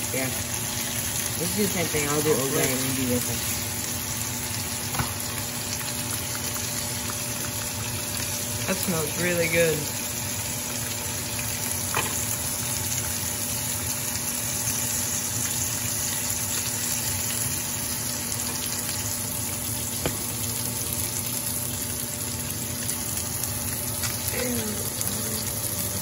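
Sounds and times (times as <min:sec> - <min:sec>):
fish sizzling in hot oil: 0:00.0 - 0:26.0.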